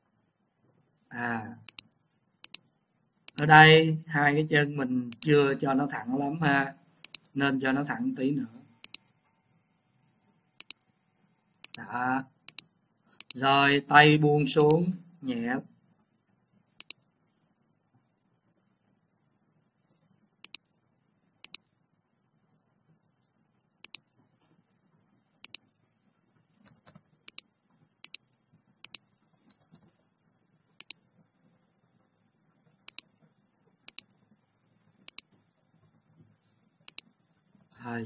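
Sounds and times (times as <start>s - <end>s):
faint low hum: 0.0s - 38.0s
mouse buttons clicking: 1.6s - 2.7s, 3.3s - 3.5s, 5.1s - 5.3s, 7.0s - 7.4s, 8.8s - 9.2s, 10.6s - 10.9s, 11.5s - 13.4s, 14.5s - 14.9s, 16.8s - 17.1s, 20.4s - 20.7s, 21.4s - 21.7s, 23.8s - 24.1s, 25.4s - 25.8s, 26.6s - 30.0s, 30.8s - 31.0s, 32.8s - 33.2s, 33.8s - 34.2s, 35.0s - 35.4s, 36.8s - 37.2s.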